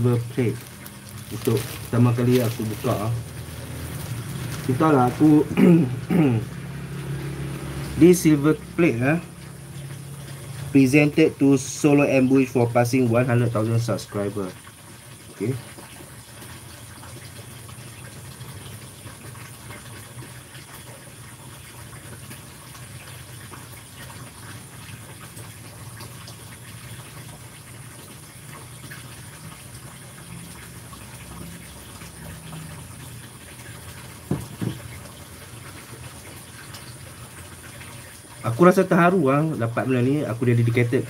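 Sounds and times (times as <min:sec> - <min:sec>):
low hum and hiss of room noise: 0:00.0 - 0:41.0
short knocks: 0:34.3 - 0:34.9.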